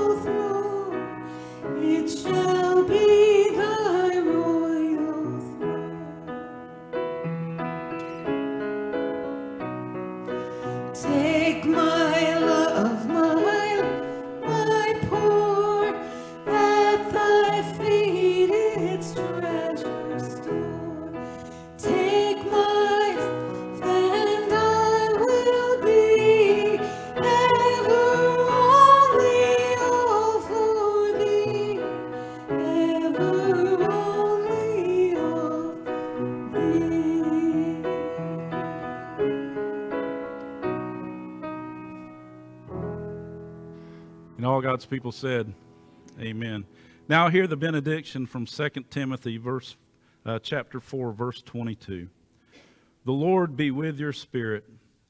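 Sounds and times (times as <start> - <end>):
piano accompaniment: 0.0 - 48.3
congregation singing a hymn: 11.0 - 38.9.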